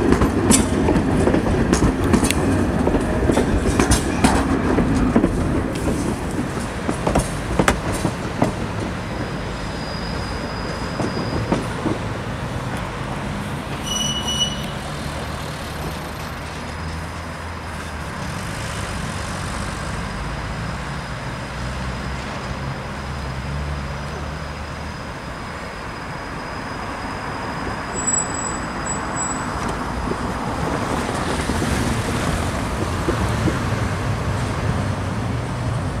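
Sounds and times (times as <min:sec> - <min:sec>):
traffic noise: 0:00.0 - 0:36.0
tram electric drive humming: 0:00.0 - 0:36.0
wheels running on rails: 0:28.0 - 0:36.0.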